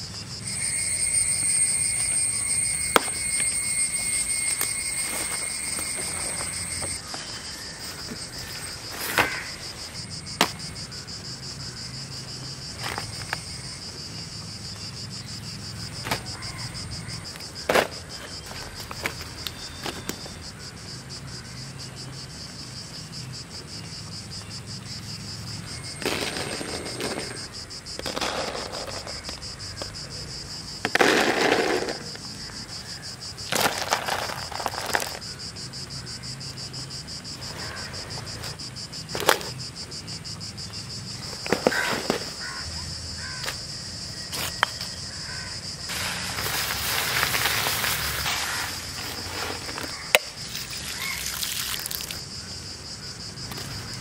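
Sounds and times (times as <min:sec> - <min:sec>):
high-pitched insect chirr: 0:00.0 - 0:54.0
leaves rustling: 0:45.8 - 0:52.2.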